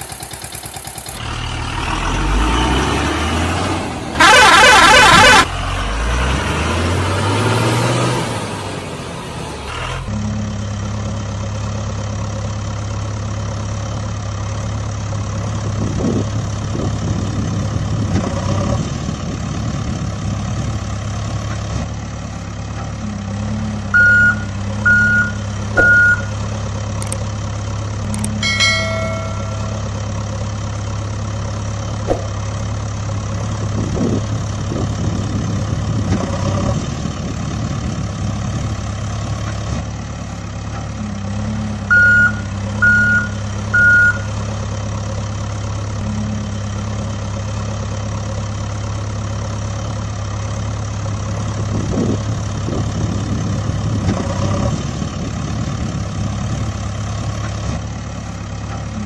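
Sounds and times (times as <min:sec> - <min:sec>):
truck engine idling: 0:00.0 - 0:59.0
reversing beeps: 0:24.0 - 0:26.3, 0:41.9 - 0:44.3.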